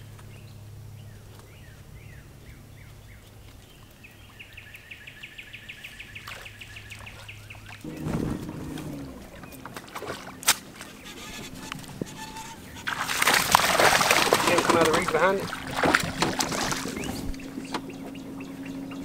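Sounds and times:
songbirds singing: 0.0 - 19.0
steady low hum: 6.7 - 19.0
loud noise: 7.9 - 9.8.

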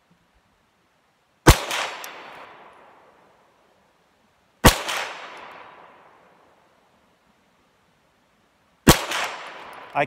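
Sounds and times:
pistol shots with ringing echo: 1.5 - 2.7, 4.6 - 6.2, 8.9 - 9.9.

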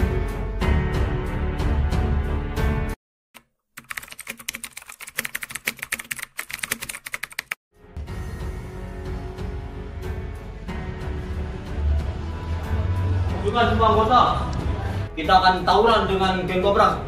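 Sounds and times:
background music: 0.0 - 3.0, 7.8 - 17.0
keyboard typing clicks: 3.4 - 7.6.

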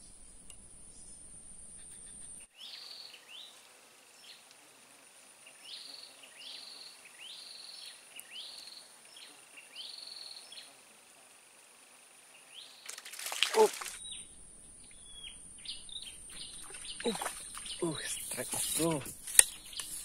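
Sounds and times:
high-pitched insect whine: 0.0 - 20.0
bird short high calls: 12.5 - 20.0
low background rumble: 14.0 - 19.8.

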